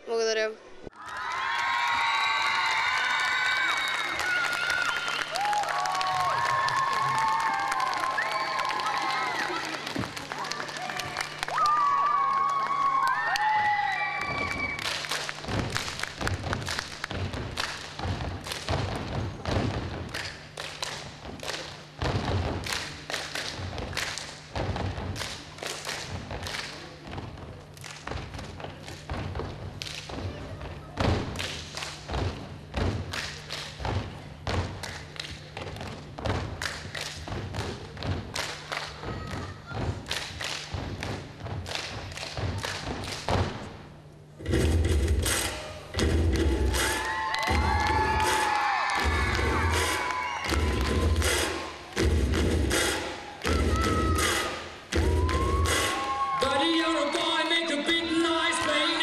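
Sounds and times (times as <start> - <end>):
rhythmic stomping percussion: 14.2 - 59.0
stomping on wooden stage floor: 15.4 - 20.2, 21.0 - 22.9, 23.5 - 25.3, 26.1 - 33.1, 39.0 - 43.8
music: 44.4 - 58.7.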